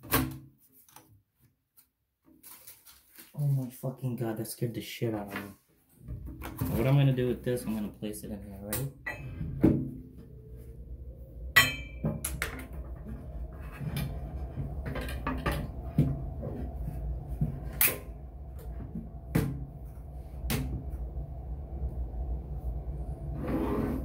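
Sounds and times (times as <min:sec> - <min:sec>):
steady low hum: 0:06.1 - 0:24.0.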